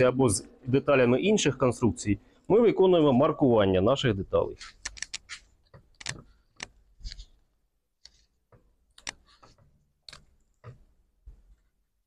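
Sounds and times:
marker pen writing on plastic: 9.0 - 9.6.

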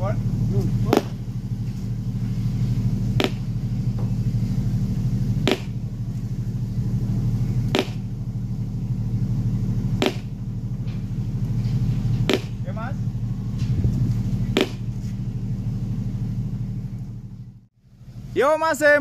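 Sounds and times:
subwoofer bass rumble: 0.0 - 18.4.

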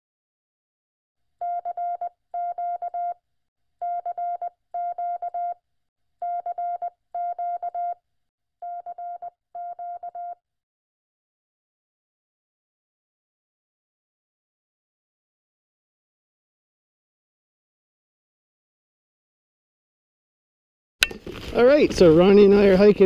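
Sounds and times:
morse code beeps: 1.4 - 3.2, 3.8 - 5.6, 6.2 - 8.0, 8.6 - 10.4.

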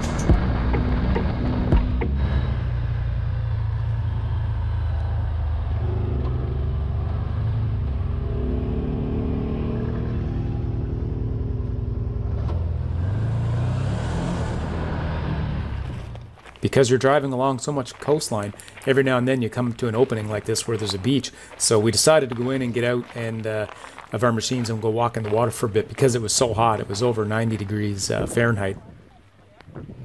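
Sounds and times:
vehicle engine running: 0.0 - 28.4.

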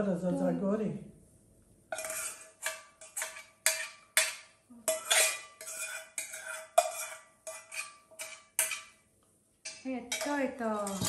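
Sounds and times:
metal spoon scraping saucepan: 1.9 - 9.0, 9.6 - 11.0.

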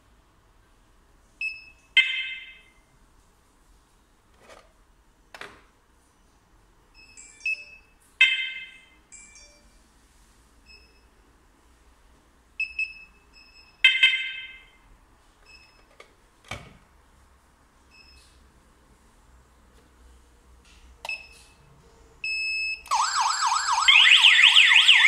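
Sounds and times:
loud alarm siren chirps: 22.9 - 25.0.

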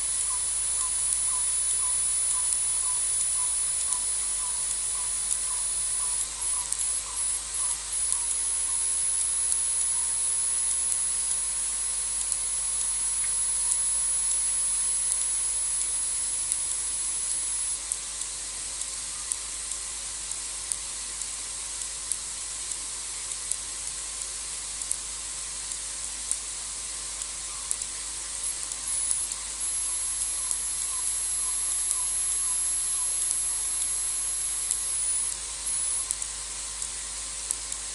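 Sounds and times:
insects trilling: 0.0 - 18.0, 27.4 - 37.2
quiet insect chirps: 0.0 - 37.9.

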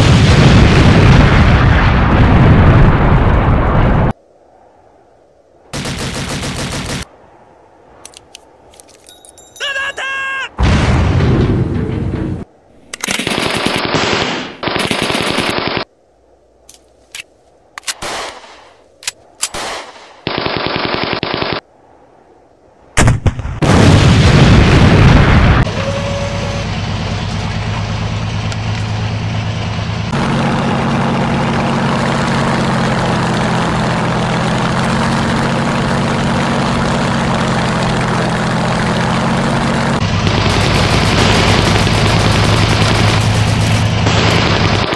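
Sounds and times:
machine-gun fire: 5.7 - 7.1, 13.0 - 15.9, 19.5 - 21.6, 40.0 - 44.9
loud blast: 10.6 - 12.5, 23.0 - 27.8
short whine: 25.6 - 29.1
propeller aircraft engine: 25.6 - 44.9.

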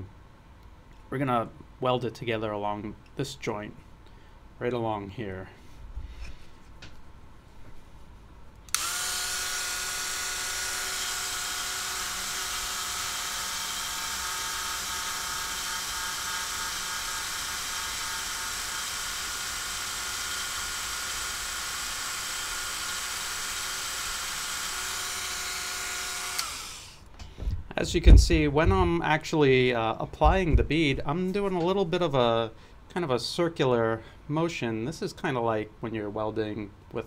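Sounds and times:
rotary tool high whine: 8.7 - 27.1.

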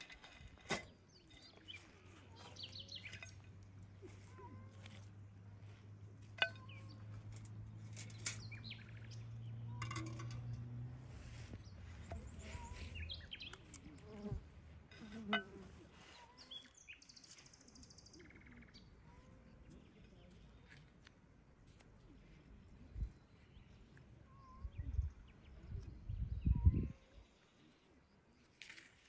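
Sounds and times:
birds chirping: 0.8 - 5.1, 6.3 - 14.0, 16.0 - 20.9, 22.7 - 28.5.

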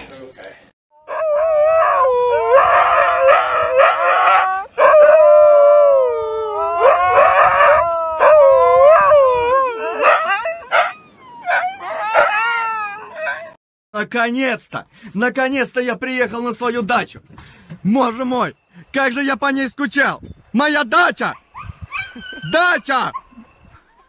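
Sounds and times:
huskies howling: 1.0 - 13.6.

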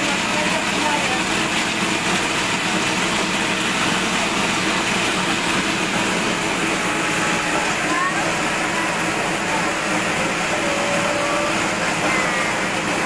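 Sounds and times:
crusher machine running: 0.0 - 13.0.

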